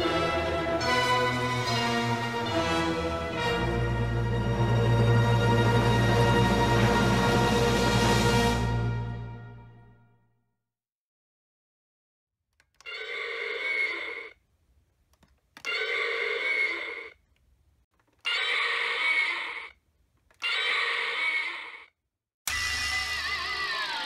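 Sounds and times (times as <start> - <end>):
toy electronic roar: 12.8 - 14.4, 15.6 - 17.2, 18.2 - 19.8, 20.4 - 21.9, 22.5 - 24.0.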